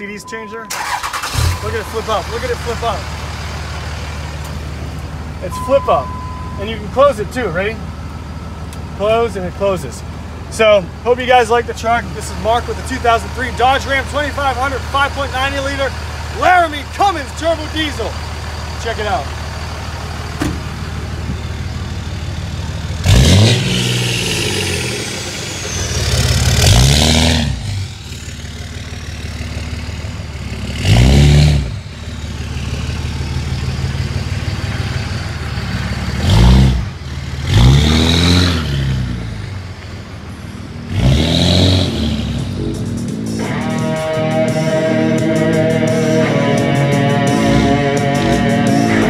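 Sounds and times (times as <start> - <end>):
diesel truck engine revving: 0.0 - 49.0
rock music: 42.4 - 49.0.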